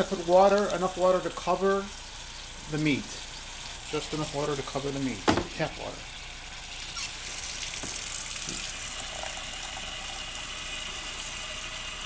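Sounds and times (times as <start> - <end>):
tap water splashing into saucepan: 6.8 - 9.9.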